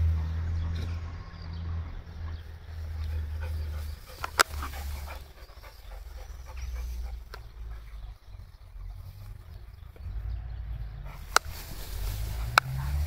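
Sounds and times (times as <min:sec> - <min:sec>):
dog panting: 0:02.3 - 0:10.0, 0:10.9 - 0:13.0.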